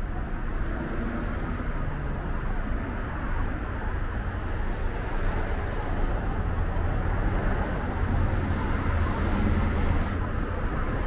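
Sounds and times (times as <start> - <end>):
traffic rumble: 0.0 - 11.0.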